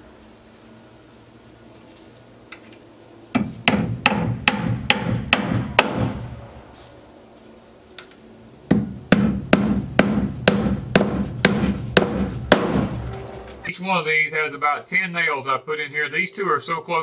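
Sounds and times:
hammer striking nails into metal plate: 0:03.4 - 0:06.2, 0:08.7 - 0:13.1.

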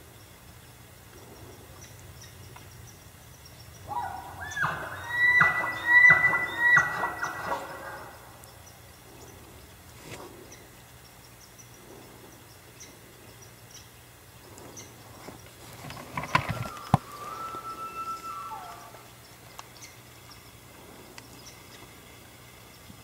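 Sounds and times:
elk calling: 0:03.9 - 0:08.4, 0:16.5 - 0:19.2.

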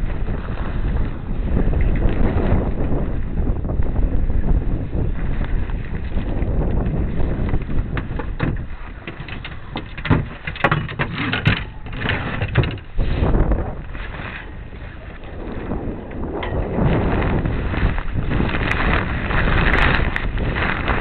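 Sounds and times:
wind buffeting microphone: 0:00.0 - 0:21.0
sharp knocks and clatters: 0:07.9 - 0:12.9.

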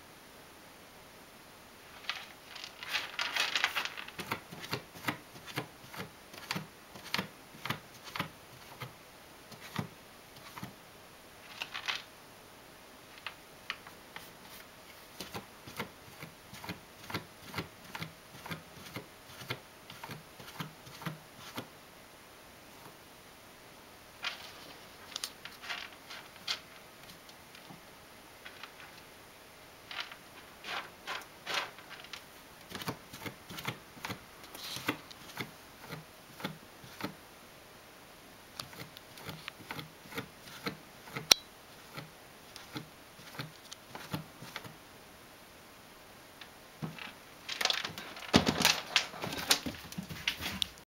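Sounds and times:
cat scratching in litter: 0:38.6 - 0:44.7.

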